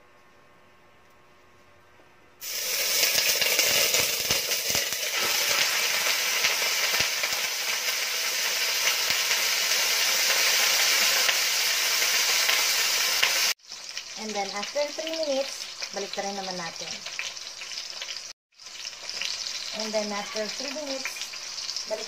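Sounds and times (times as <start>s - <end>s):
oil crackling and popping: 2.4s - 19.9s
chicken sizzling in hot oil: 2.4s - 22.0s.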